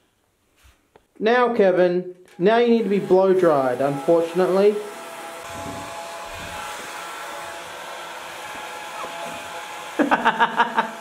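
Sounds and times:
hair dryer blowing: 2.3 - 11.0.

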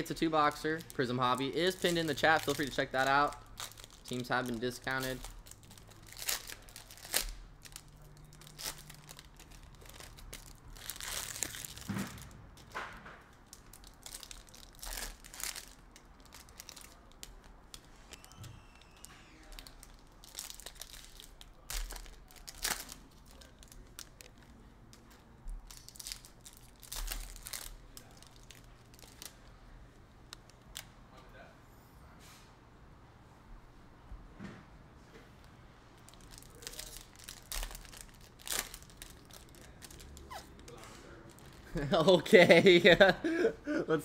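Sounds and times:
foil wrappers tearing and crinkling: 0.1 - 12.7, 13.4 - 24.5, 25.6 - 29.4, 36.1 - 42.7.

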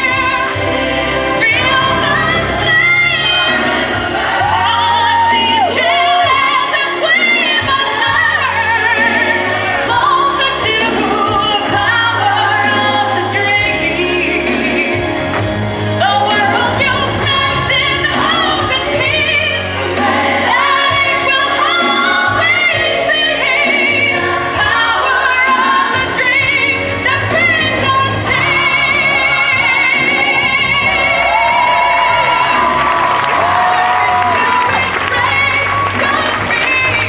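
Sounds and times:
woman singing into microphone: 0.0 - 15.4, 16.0 - 37.0.

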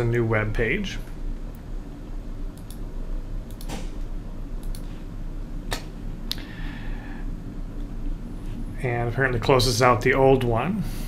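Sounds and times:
steady low hum: 0.0 - 11.0
computer mouse clicking: 2.6 - 2.8, 3.5 - 3.8, 4.6 - 5.0.

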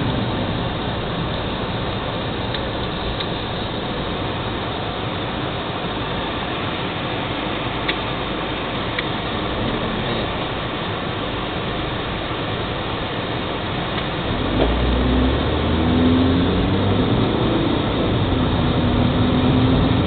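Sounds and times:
car road and wind noise: 0.0 - 20.0.

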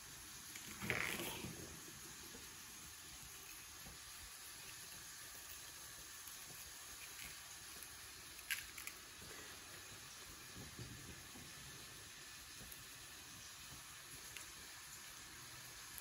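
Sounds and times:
faint hiss: 0.0 - 16.0
soft handling noise: 0.5 - 2.5.

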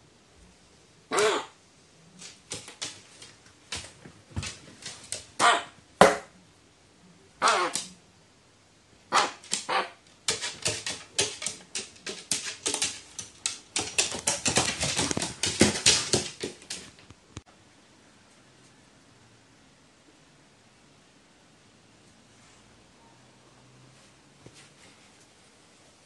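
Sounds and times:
crow sneezing: 1.1 - 1.6, 7.4 - 8.0, 9.1 - 10.0.

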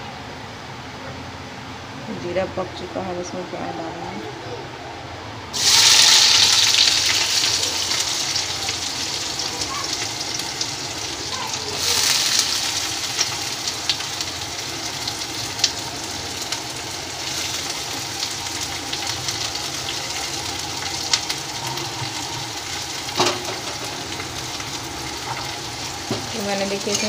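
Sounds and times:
seeds sizzling in hot oil: 5.5 - 27.0
sharp pops of frying: 5.6 - 27.0.

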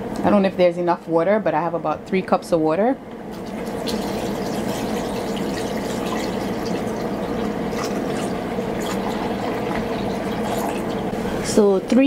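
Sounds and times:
water pouring into tank: 3.3 - 11.2
water drips and splashes: 3.4 - 11.1.

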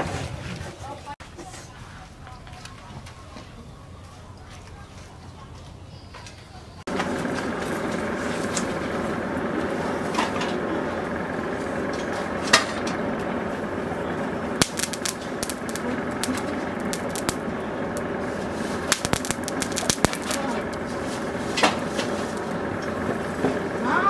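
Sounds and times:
forge fire air blast rushing: 11.0 - 23.8.

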